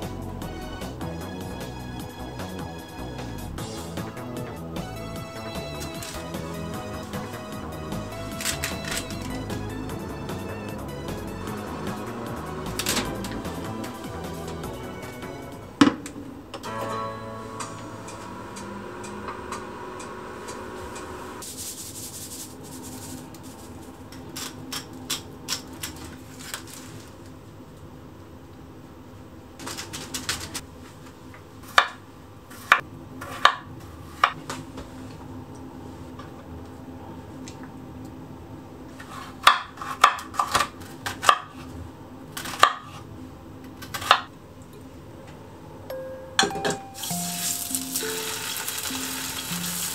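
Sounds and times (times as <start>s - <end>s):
knife chopping onion on wooden board: 39.0s - 41.6s.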